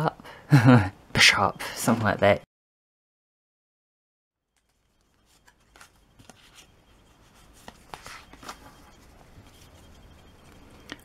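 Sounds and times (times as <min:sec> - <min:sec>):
cards sliding and handled: 0:04.6 - 0:11.0.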